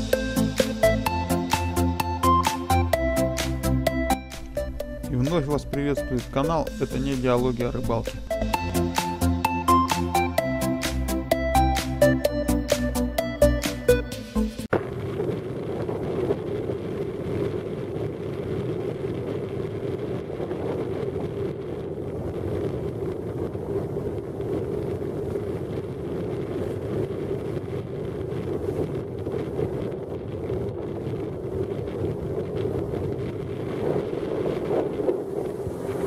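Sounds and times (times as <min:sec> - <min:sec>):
wind buffeting microphone: 0:14.7 - 0:36.0.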